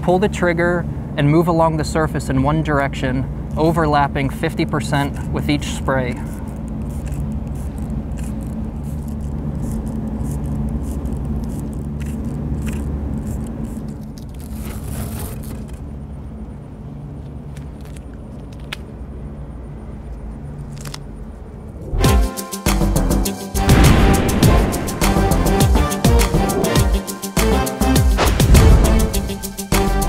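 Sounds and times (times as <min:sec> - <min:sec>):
low mechanical hum: 0:00.0 - 0:22.0
paint sprayer hissing spurts: 0:06.2 - 0:14.0.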